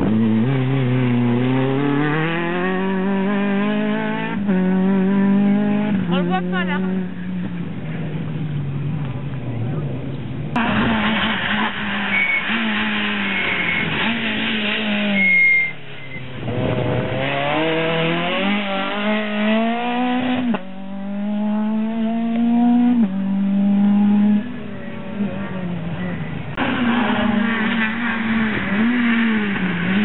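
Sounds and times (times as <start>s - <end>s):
rally car engine revving: 0.0s - 30.0s
tyre squeal: 10.8s - 16.3s.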